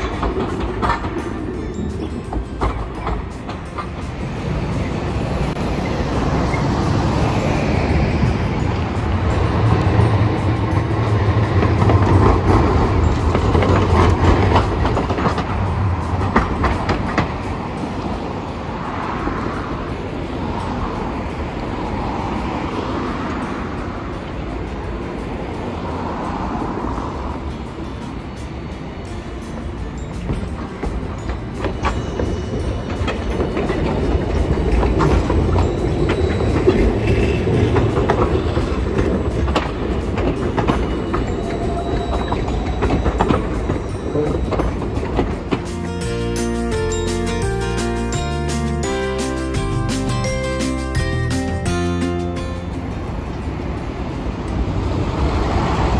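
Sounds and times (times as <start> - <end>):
tram humming: 0.0 - 55.9
wheels clicking on track: 0.0 - 55.9.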